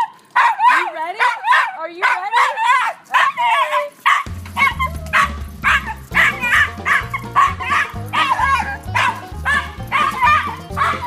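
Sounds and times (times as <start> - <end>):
small dog yapping: 0.0 - 11.0
background music with bass: 4.3 - 11.0.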